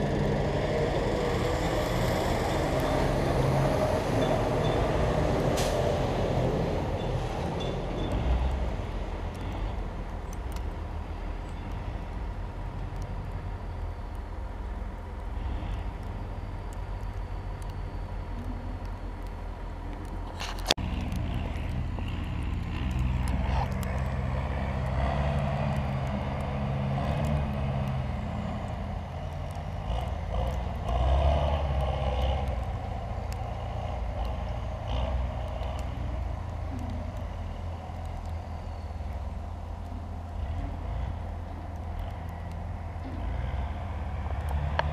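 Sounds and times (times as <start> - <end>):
diesel machinery rumbling: 0.0 - 44.9.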